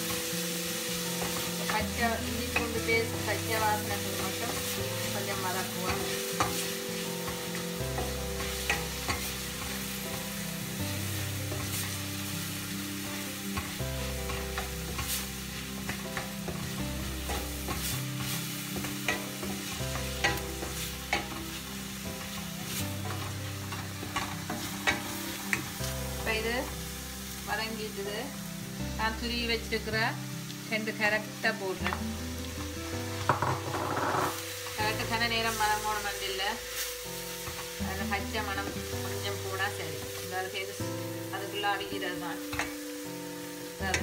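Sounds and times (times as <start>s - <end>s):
onions sizzling in oil: 0.0s - 44.0s
wooden spatula scraping pan: 33.1s - 34.5s.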